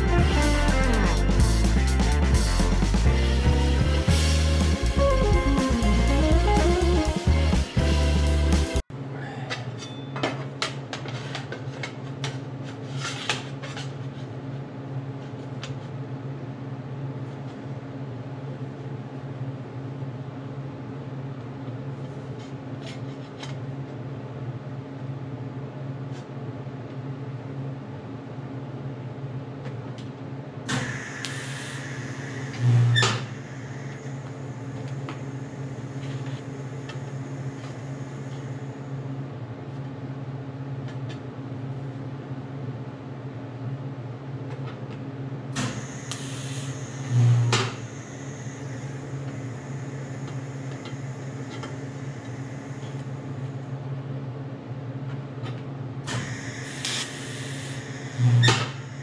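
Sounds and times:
welding set electrical hum: 0.0 - 59.0
welding arc buzzes: 30.7 - 39.0, 45.6 - 53.6, 56.1 - 59.0.

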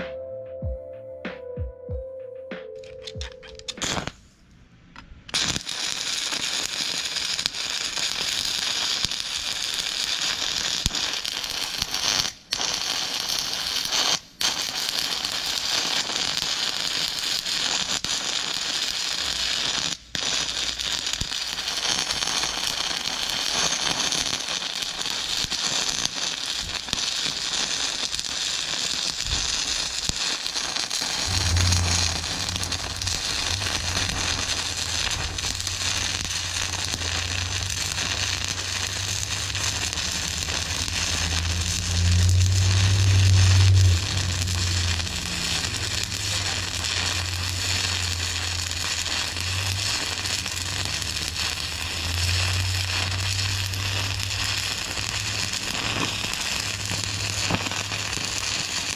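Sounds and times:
welding arc crackling: 3.0 - 4.2, 5.3 - 58.9
low hum: 31.1 - 51.0.

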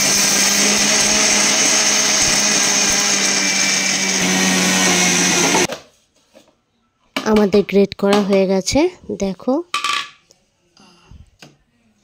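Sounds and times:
mixer grinder motor whine: 0.0 - 5.7.

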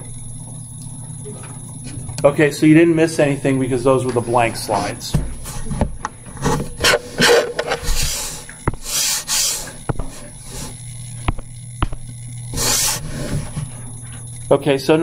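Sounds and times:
low steady hum: 0.0 - 15.0
rubbing and rustling near microphone: 6.4 - 10.8.

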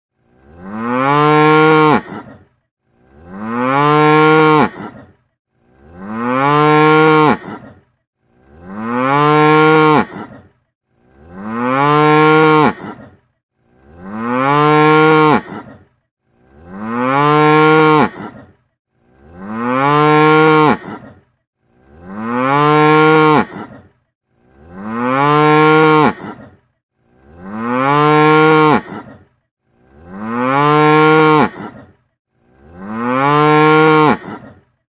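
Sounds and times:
cow mooing: 0.4 - 2.4, 3.1 - 5.1, 5.8 - 7.8, 8.5 - 10.5, 11.2 - 13.2, 13.8 - 15.8, 16.5 - 18.5, 19.2 - 21.2, 21.9 - 23.9, 24.6 - 26.6, 27.2 - 29.2, 29.9 - 31.9, 32.6 - 34.6.

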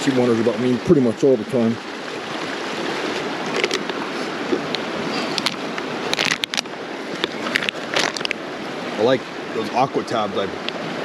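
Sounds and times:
stream rushing: 0.0 - 11.0.

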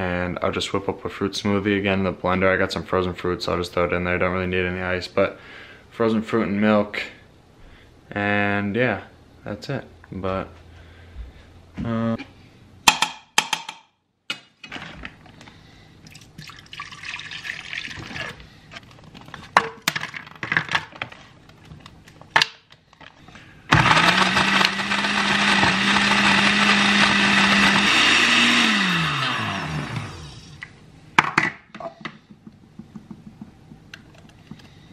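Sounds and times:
blender motor running: 23.7 - 30.7.

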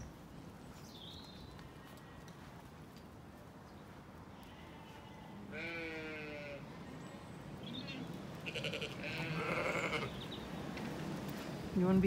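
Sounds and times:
sheep bleating: 4.4 - 6.6, 7.9 - 10.2.

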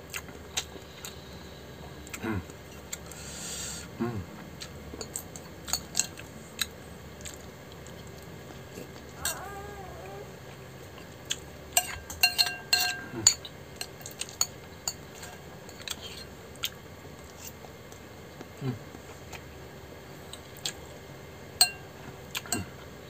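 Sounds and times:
cutlery clinking against dish: 5.0 - 6.2, 11.8 - 15.9, 21.6 - 21.8.

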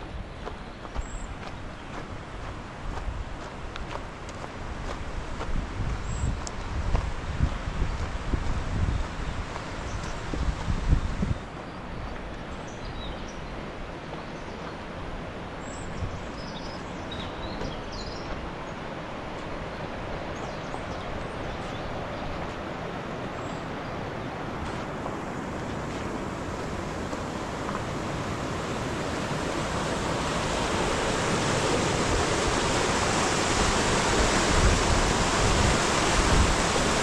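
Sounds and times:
wind buffeting microphone: 0.0 - 14.0, 19.3 - 37.0
rain falling: 24.9 - 37.0.

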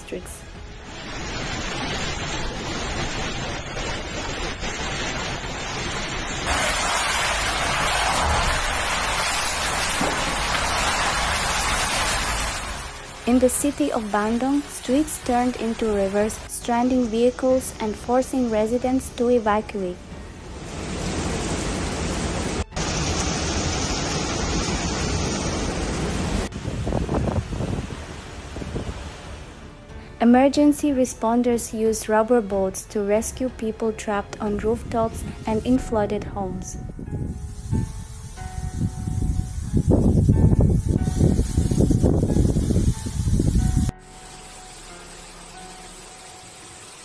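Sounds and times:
storm wind: 0.5 - 13.9, 20.3 - 29.6, 36.3 - 44.0
heavy rain: 0.5 - 16.5, 20.4 - 29.7.

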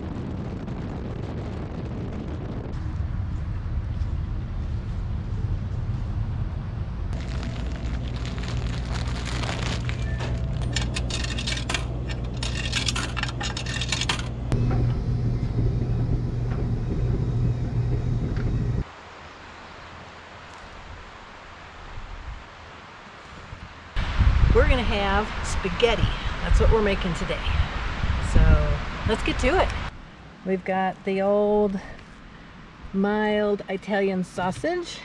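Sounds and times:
quiet outdoor background: 2.7 - 35.0
washing machine humming: 7.2 - 18.8
clicks and rattles: 10.2 - 14.6.

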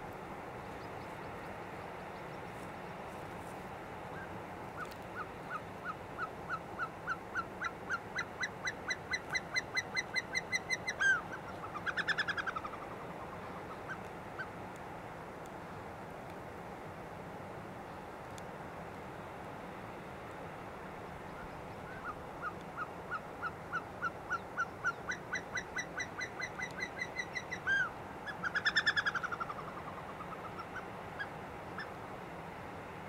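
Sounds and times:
background hiss: 0.0 - 33.0
bird whistling song: 23.4 - 29.6.

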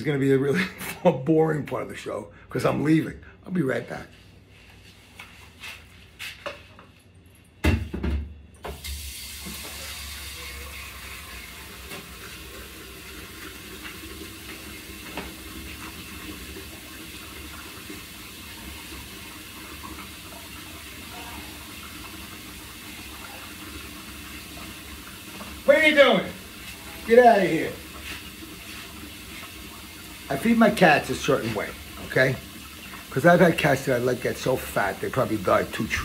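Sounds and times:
knocks and thump: 7.6 - 8.4
tap water running into sink: 8.6 - 36.0
dishes being cleaned: 26.6 - 29.5.

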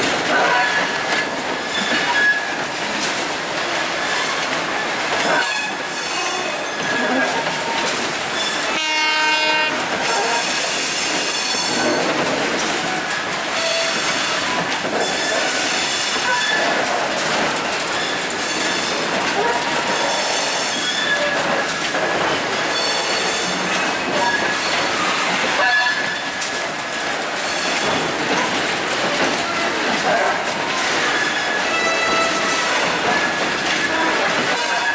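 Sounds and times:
clattering over rail joints: 0.0 - 34.9
train wheels on rails: 0.0 - 34.9
high-pitched wheel squeals: 19.9 - 21.4.

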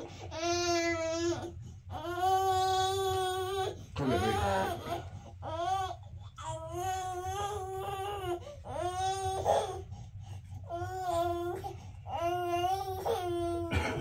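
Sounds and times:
infant crying: 0.2 - 9.8, 10.7 - 14.0.

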